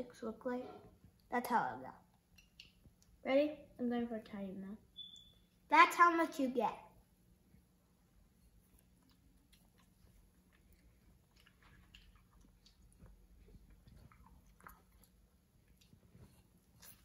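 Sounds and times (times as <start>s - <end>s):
child chewing noodles: 8.2s - 17.0s.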